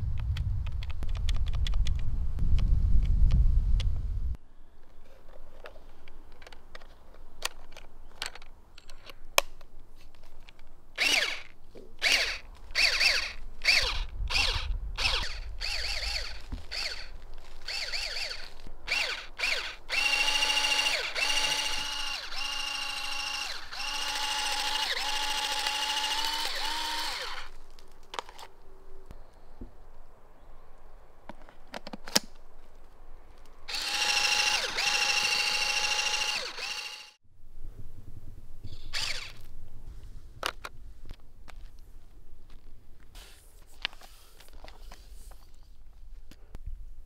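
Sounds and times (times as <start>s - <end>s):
plastic clicks: 4.8s - 14.1s
toy pump motor whirring: 11.0s - 27.6s, 33.7s - 37.2s, 38.7s - 39.4s.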